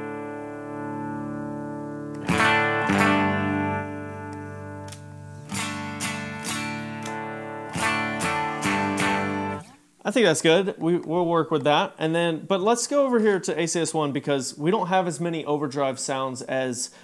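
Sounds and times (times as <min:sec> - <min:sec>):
electric guitar strumming chords: 0:00.0 - 0:09.9.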